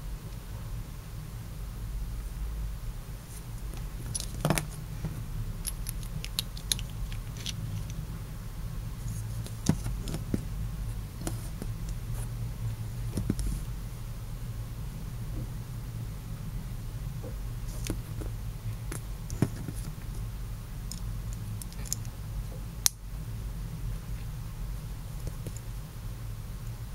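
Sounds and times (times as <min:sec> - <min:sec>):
steady low hum: 0:00.0 - 0:26.9
small plastic parts clicking: 0:05.6 - 0:08.0, 0:20.8 - 0:22.1.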